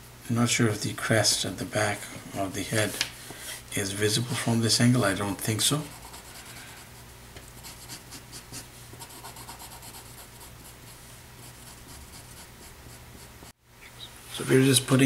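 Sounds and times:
pencil scratching on paper: 5.8s - 13.6s.

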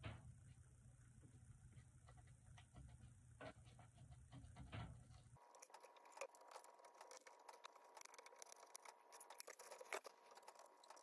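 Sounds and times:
cotton swabs scratching plastic: 5.4s - 11.0s.

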